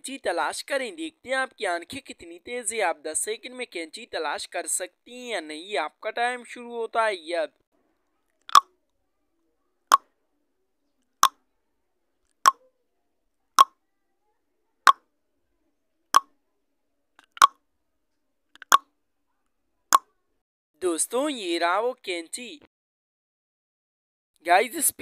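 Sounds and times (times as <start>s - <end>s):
short sharp timer pops: 17.2s - 17.6s, 18.6s - 18.8s.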